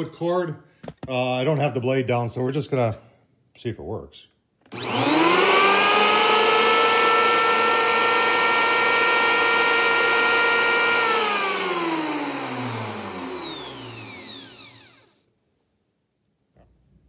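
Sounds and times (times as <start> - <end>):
electric planer whining: 4.7 - 15.2
motor spinning down: 4.7 - 15.2.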